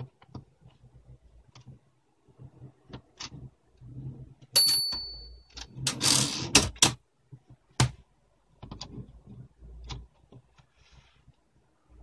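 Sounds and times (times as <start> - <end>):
typewriter carriage sliding whir: 5.6 - 6.8.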